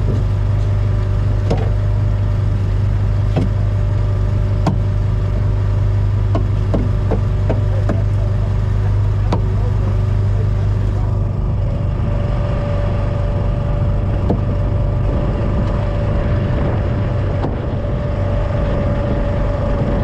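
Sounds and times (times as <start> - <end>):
gear knocking against boat: 0.0 - 10.3, 14.0 - 15.8
boat engine running: 0.0 - 20.0.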